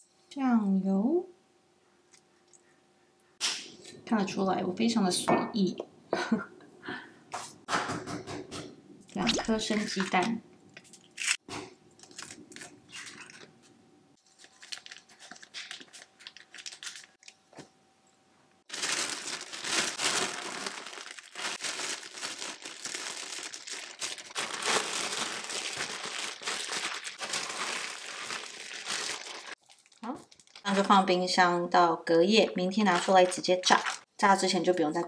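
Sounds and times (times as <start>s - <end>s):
plastic bag rustling: 12.0s - 17.3s, 18.7s - 31.2s, 32.7s - 34.1s.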